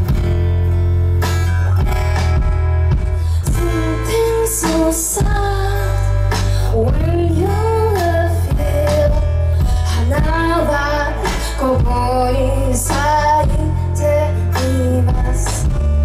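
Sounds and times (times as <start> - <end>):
drum kit: 0.0 - 16.0
electric guitars: 0.0 - 16.0
woman singing: 3.4 - 16.0.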